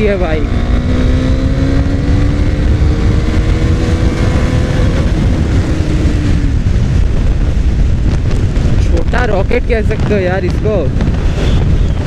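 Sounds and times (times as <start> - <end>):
motorcycle engine accelerating: 0.0 - 9.2
wind rush on microphone: 0.0 - 12.0.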